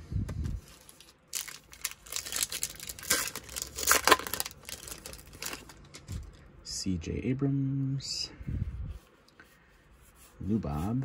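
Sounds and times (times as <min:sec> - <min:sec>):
wrapper crinkling and tearing: 0:00.6 - 0:06.4.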